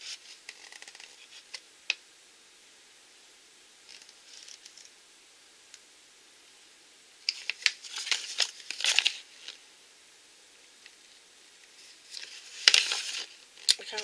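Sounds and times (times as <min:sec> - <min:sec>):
paper catalogue rustling: 0:07.3 - 0:09.6, 0:11.8 - 0:14.0.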